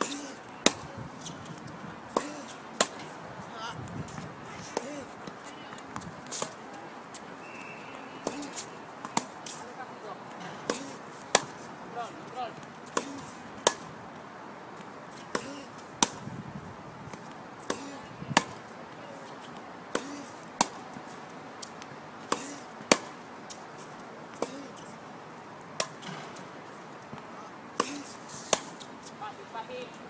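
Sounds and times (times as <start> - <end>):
tennis ball struck by racket: 0.0 - 3.2, 4.1 - 6.6, 8.2 - 9.6, 10.4 - 11.7, 12.6 - 14.0, 15.1 - 16.3, 17.1 - 18.7, 19.3 - 23.6, 24.3 - 24.9, 25.8 - 26.5, 27.1 - 29.2
tennis ball bouncing on court: 0.6 - 3.2, 7.9 - 9.6, 10.2 - 11.7, 12.5 - 14.0, 14.8 - 16.3, 17.1 - 18.7, 19.4 - 23.6, 25.8 - 26.5, 27.1 - 29.2.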